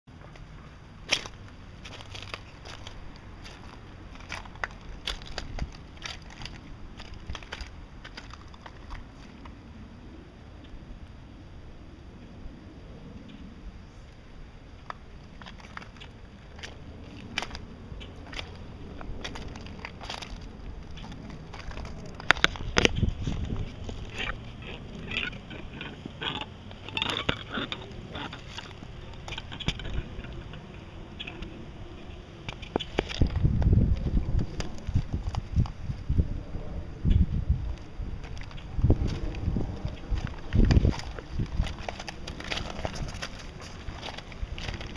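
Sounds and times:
footsteps crunching on shells: 0:01.0 - 0:09.6, 0:14.8 - 0:31.5, 0:32.5 - 0:35.9, 0:37.8 - 0:44.9
low rumble: 0:01.0 - 0:44.9.

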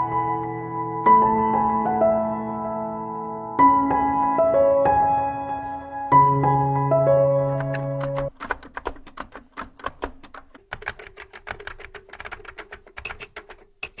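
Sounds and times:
keyboard typing clicks: 0:07.4 - 0:14.0.

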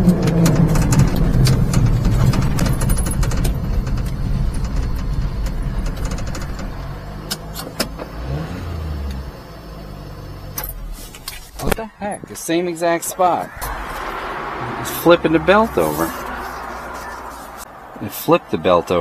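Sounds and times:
truck engine winding down: 0:00.0 - 0:17.9
tyres rolling on gravel: 0:10.9 - 0:19.0.

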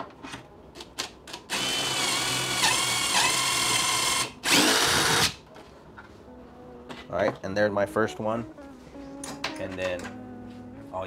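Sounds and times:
cordless drill boring: 0:01.5 - 0:05.4.

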